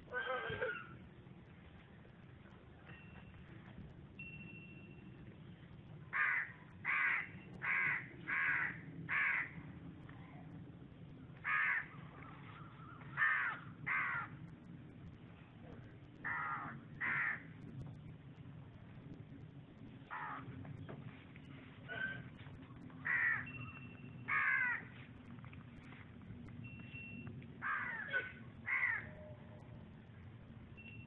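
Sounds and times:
crow cawing: 0:06.1 - 0:09.6, 0:11.4 - 0:14.4, 0:16.2 - 0:17.5, 0:20.1 - 0:20.5, 0:23.0 - 0:25.0, 0:27.6 - 0:29.2.

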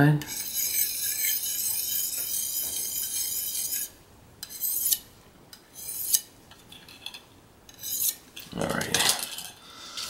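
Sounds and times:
knife rasping on sharpening hone: 0:00.3 - 0:05.0, 0:05.7 - 0:06.3, 0:07.7 - 0:08.2.

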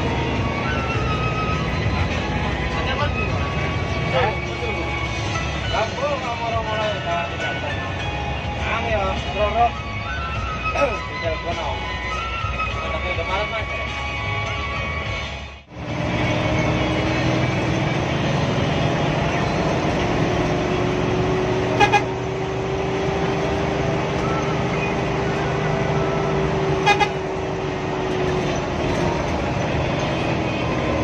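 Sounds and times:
bus diesel engine and road noise: 0:00.0 - 0:31.0
bus horn toots: 0:21.6 - 0:22.4, 0:26.5 - 0:28.0.

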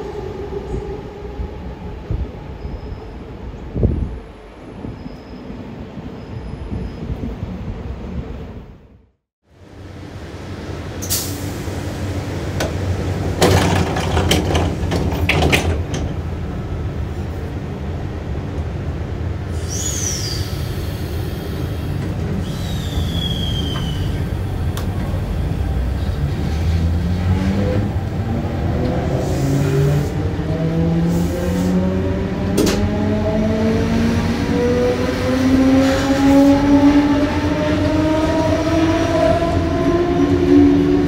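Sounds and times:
clicks and clunks: 0:13.4 - 0:16.2, 0:32.6 - 0:32.9.

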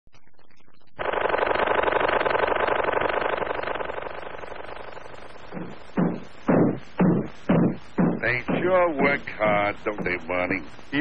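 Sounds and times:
rapid mechanical rattle: 0:01.0 - 0:05.9.

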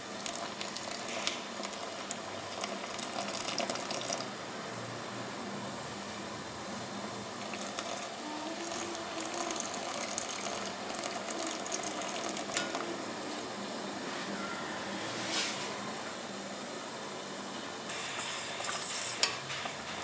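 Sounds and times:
liquid bubbling in a pot: 0:00.0 - 0:04.4, 0:07.2 - 0:13.1, 0:17.9 - 0:20.0
syrup pouring: 0:00.2 - 0:04.3, 0:07.4 - 0:12.8.

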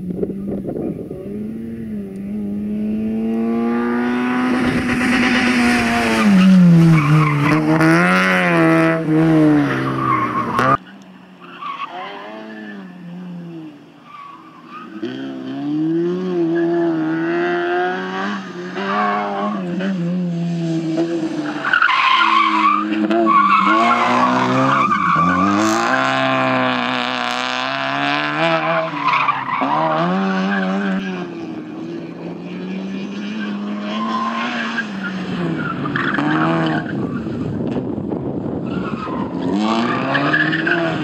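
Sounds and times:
car engine revving hard: 0:01.2 - 0:10.8, 0:23.0 - 0:29.0
tyre squeal: 0:21.5 - 0:26.2.

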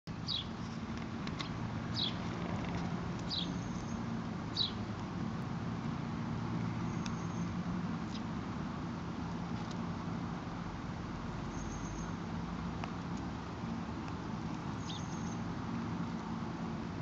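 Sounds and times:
bird chirping: 0:00.2 - 0:00.8, 0:01.4 - 0:02.2, 0:03.3 - 0:04.8, 0:06.8 - 0:07.5, 0:11.5 - 0:12.2, 0:14.8 - 0:15.4.

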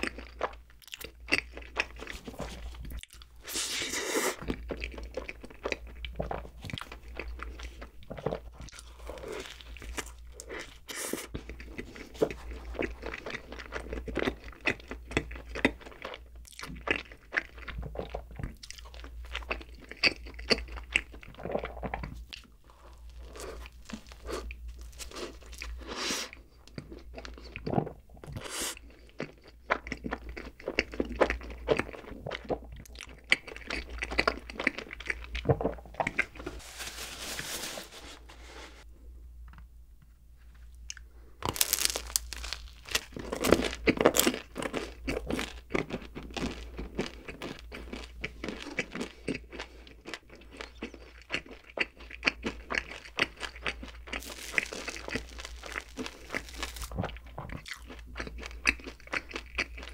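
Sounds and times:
bread crust crunching: 0:21.4 - 0:25.9, 0:41.4 - 0:48.8, 0:52.4 - 0:59.9.

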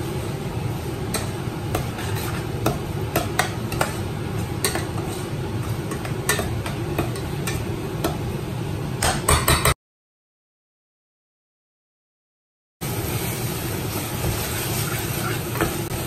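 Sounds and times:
food sizzling: 0:00.0 - 0:09.0, 0:12.8 - 0:16.0
metal spoon scraping a pot: 0:01.1 - 0:07.6.

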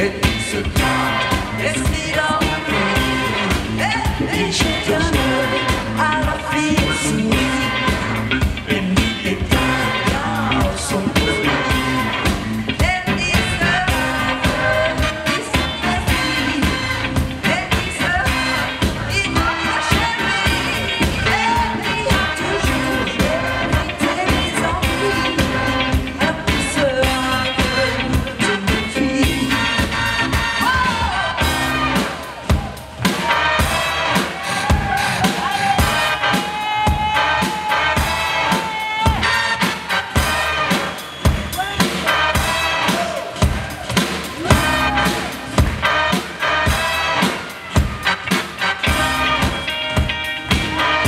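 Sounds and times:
woman singing lead: 0:00.0 - 0:34.5, 0:44.4 - 0:48.0
live pop-rock band: 0:00.0 - 0:51.0.

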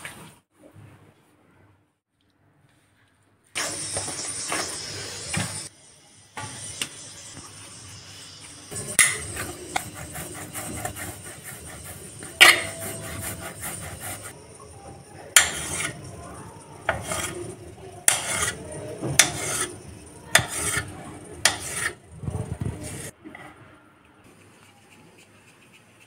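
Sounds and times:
hands rolling dough on steel: 0:08.7 - 0:23.1.

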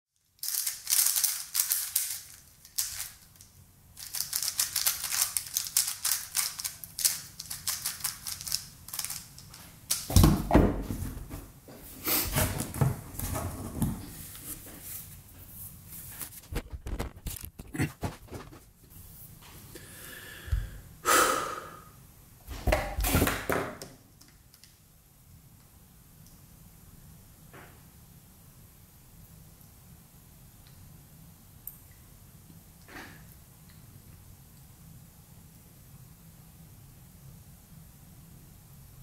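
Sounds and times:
puzzle cube plastic clicking: 0:04.0 - 0:10.1.

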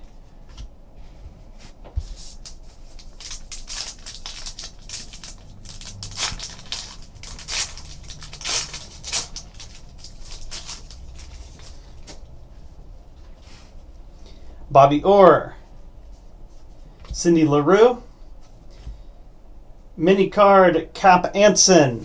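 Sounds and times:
foil card pack crinkling: 0:02.2 - 0:12.3.

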